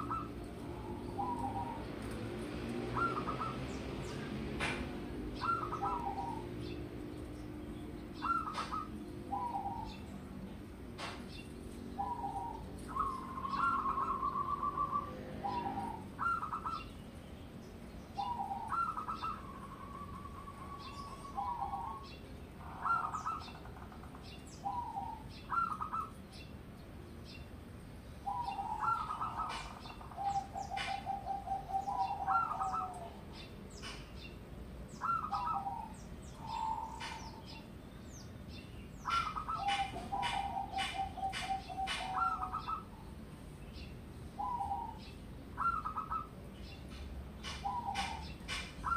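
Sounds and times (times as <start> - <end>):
dove cooing: 0.0 - 7.2, 8.0 - 10.2, 11.0 - 16.9, 18.1 - 26.2, 28.2 - 34.0, 35.0 - 37.7, 39.0 - 43.2, 44.4 - 46.4, 47.4 - 48.9.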